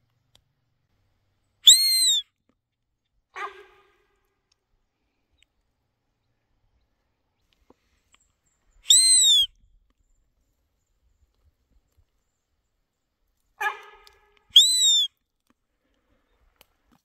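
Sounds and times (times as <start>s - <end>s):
deer call squeal: 1.6s - 2.2s, 3.4s - 4.1s, 8.9s - 9.5s, 13.6s - 15.1s.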